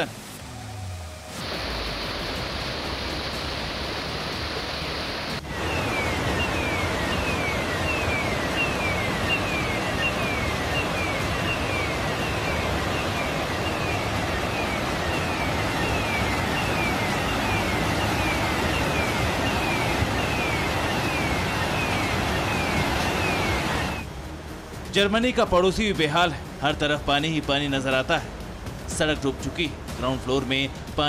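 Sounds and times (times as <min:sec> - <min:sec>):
floodwater rushing: 0:00.0 - 0:24.0.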